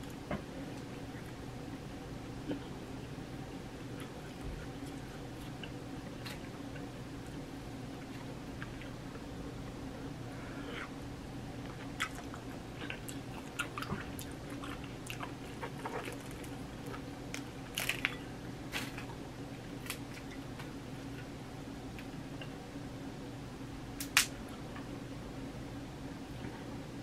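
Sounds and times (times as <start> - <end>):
chewing and lip smacks: 11.7 - 17.0.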